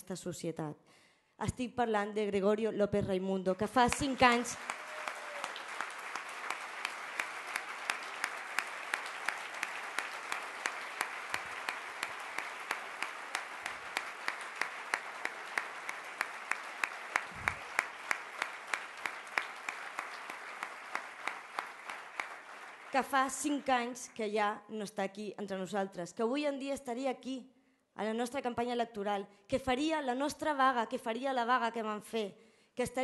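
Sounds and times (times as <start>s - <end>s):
sharp evenly spaced claps: 3.9s - 23.0s
audience applauding: 3.9s - 23.9s.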